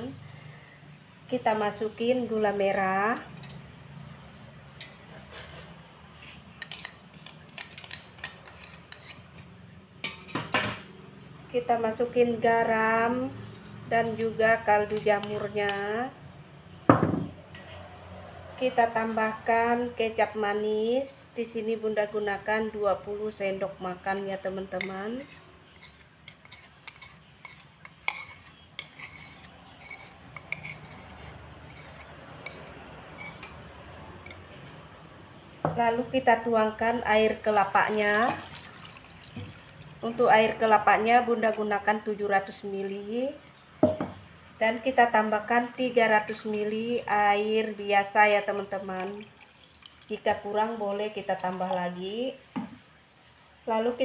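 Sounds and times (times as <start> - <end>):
spoon scraping metal tray: 4.8 - 9.4, 13.1 - 16.1, 24.6 - 34.8
spoon tapping small bowl: 43.8 - 44.2.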